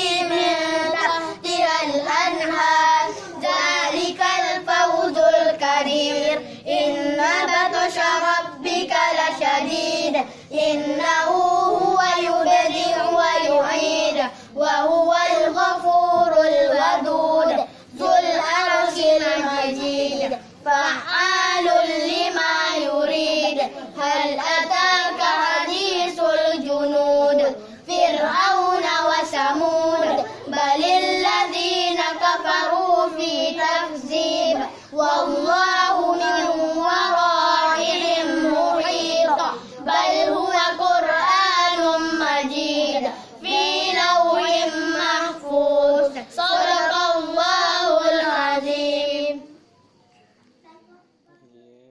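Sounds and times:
boy chanting melodically: 0.0 - 49.7.

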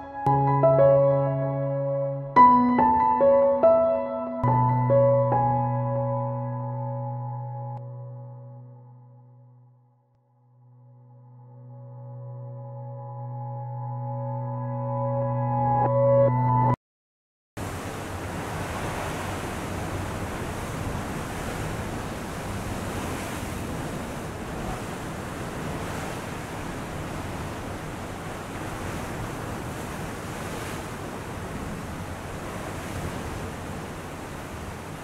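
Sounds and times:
steady rushing noise: 17.6 - 35.0.

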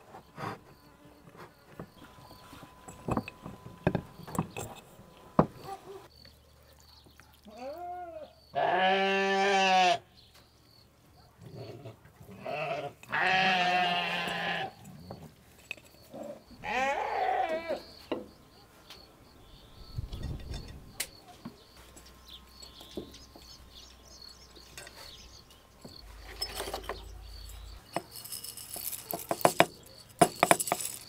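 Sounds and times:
goat bleating: 7.5 - 10.1, 12.3 - 14.8, 16.6 - 17.8.

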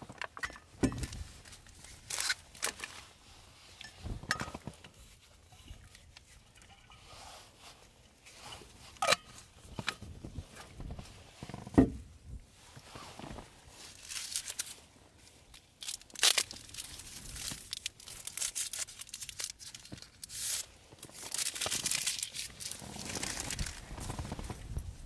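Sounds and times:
wrapper crinkling and tearing: 1.4 - 3.0, 13.8 - 24.7.

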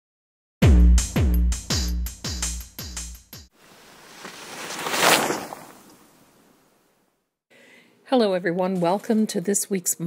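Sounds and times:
rising whoosh: 3.7 - 6.6.

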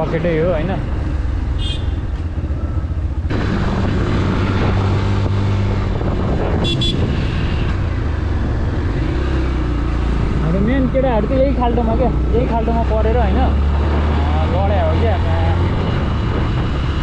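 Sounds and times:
motorcycle engine running: 0.2 - 12.5
wind rushing over microphone: 2.0 - 12.3, 13.2 - 17.0.

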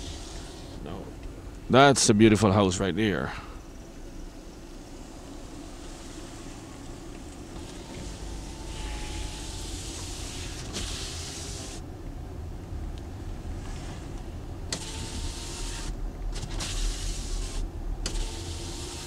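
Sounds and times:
hiss: 0.0 - 0.8, 7.6 - 11.8, 14.7 - 19.0
car engine and road rumble: 0.0 - 19.0.

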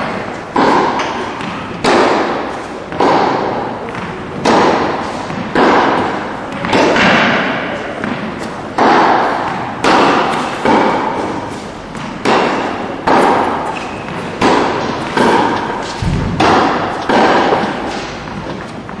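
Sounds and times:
tennis ball struck by rackets: 0.0 - 19.0.

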